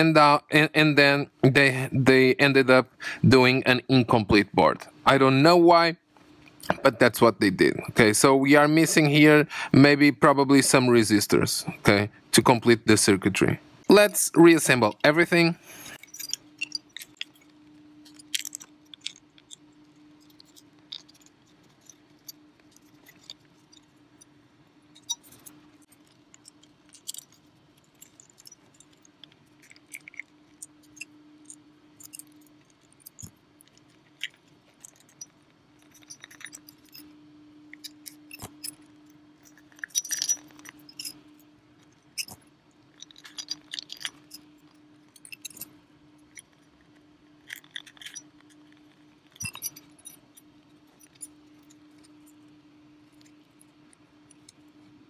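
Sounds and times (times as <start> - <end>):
faint steady hum: 0.0 - 55.0
small parts clicking and clinking: 15.8 - 55.0.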